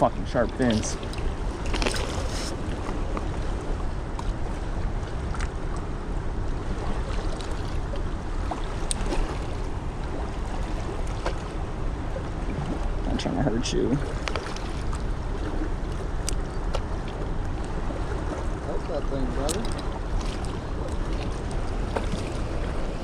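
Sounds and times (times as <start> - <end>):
wind rumble on microphone: 0.0 - 23.0
faint clicks of fishing gear: 19.5 - 22.2.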